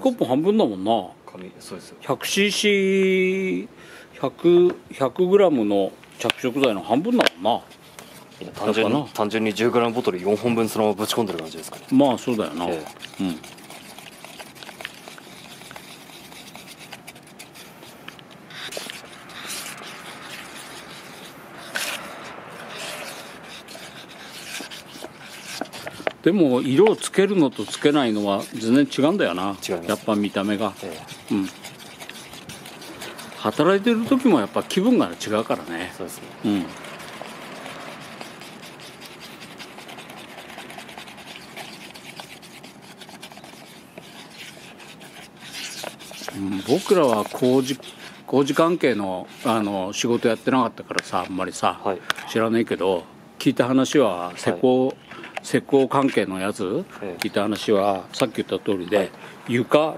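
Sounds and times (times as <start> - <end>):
stick scraping plastic bucket: 6.1 - 52.5.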